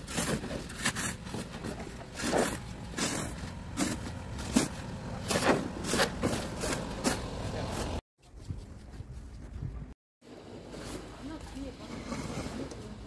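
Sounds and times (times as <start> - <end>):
snow shovels scraping snow: 0.0 - 8.0.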